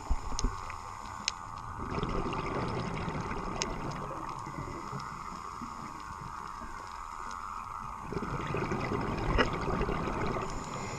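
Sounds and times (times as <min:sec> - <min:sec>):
muffled underwater noise: 0:00.0 - 0:10.9
diver exhaling bubbles: 0:01.8 - 0:04.8, 0:08.0 - 0:10.9.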